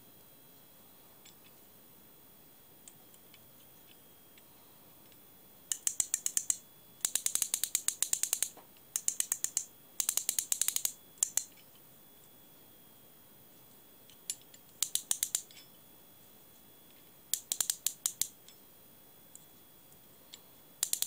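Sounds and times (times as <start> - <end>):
fly reel ratcheting clicks: 5.7 - 11.5, 14.3 - 15.5, 17.3 - 18.4, 20.8 - 21.0.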